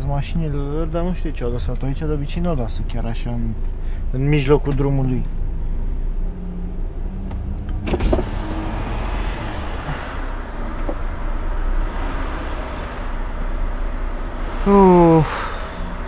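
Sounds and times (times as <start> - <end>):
diesel engine running at low revs: 0.0 - 16.0.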